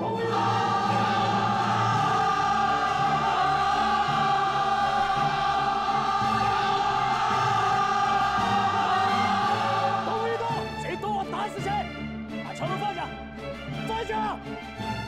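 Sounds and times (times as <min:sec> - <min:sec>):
choir singing sustained notes: 0:00.0 - 0:10.8
lower musical accompaniment: 0:00.0 - 0:15.0.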